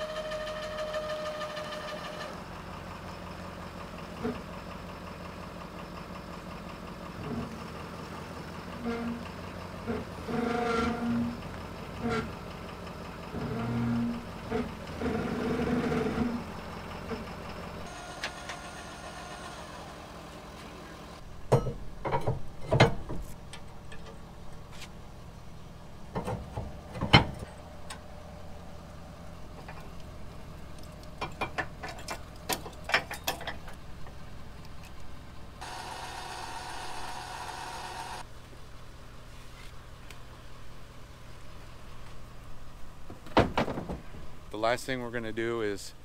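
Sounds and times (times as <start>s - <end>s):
pickup truck engine idling: 2.3s - 43.2s
metal clanks and clicks: 21.5s - 24.2s, 30.8s - 35.1s
motor whirring: 35.6s - 38.2s.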